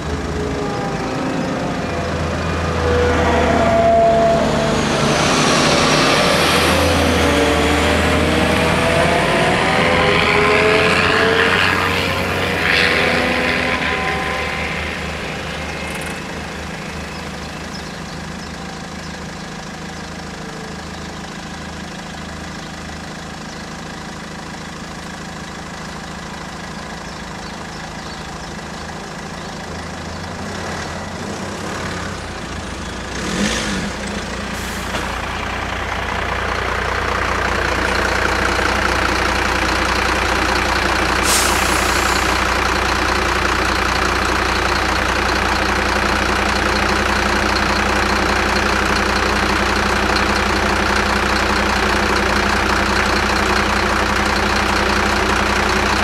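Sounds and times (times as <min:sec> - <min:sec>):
car approaching and braking: 0:00.0 - 0:56.0
car engine idling: 0:11.4 - 0:56.0.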